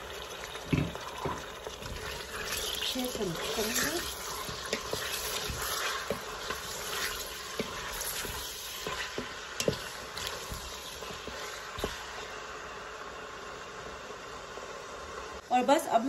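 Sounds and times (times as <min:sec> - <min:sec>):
food sizzling in hot oil: 0:00.0 - 0:16.0
wooden spoon stirring: 0:00.8 - 0:12.3.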